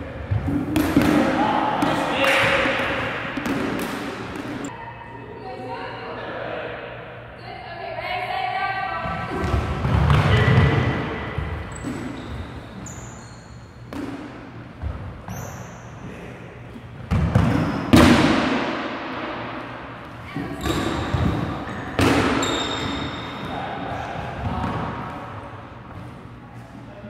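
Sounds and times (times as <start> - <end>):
balls thudding and bouncing: 0.2 - 4.7, 17.0 - 23.7.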